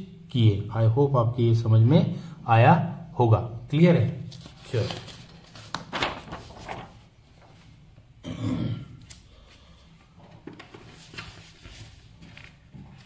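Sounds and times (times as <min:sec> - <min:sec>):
man clearing his throat: 0:08.2 - 0:09.0.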